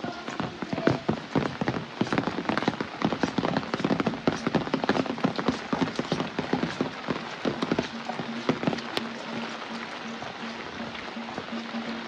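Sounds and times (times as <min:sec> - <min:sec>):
rain dripping on hard surfaces: 0:00.0 - 0:12.0.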